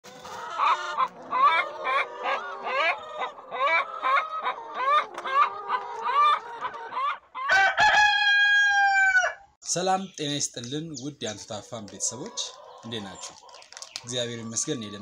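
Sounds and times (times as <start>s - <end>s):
hens clucking: 0.1s - 7.7s, 10.0s - 15.0s
long steady hen call: 0.1s - 9.5s, 14.1s - 15.0s.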